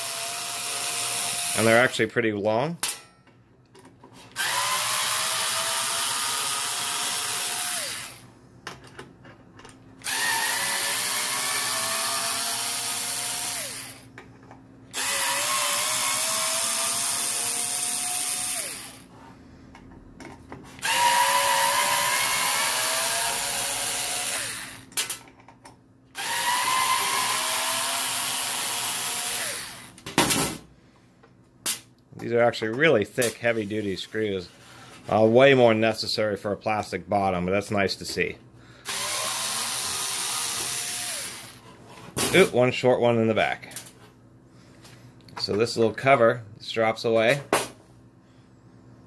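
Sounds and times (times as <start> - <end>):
electric screwdriver motor whirring: 4.4 - 8.2, 10.0 - 14.0, 14.9 - 19.0, 20.8 - 24.8, 26.2 - 30.0, 38.9 - 41.6.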